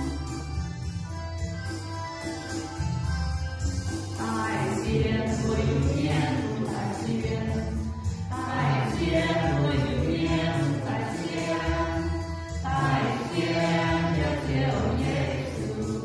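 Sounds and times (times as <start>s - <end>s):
keyboard accompaniment: 0.0s - 16.0s
group singing a hymn: 4.9s - 7.6s, 8.3s - 16.0s.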